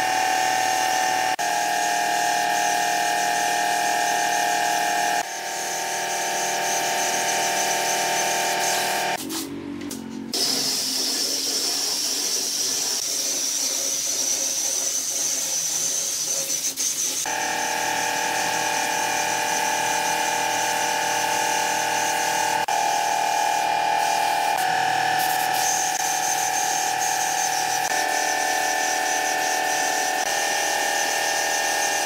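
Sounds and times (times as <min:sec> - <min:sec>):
motor hum: 0:17.3 - 0:32.0.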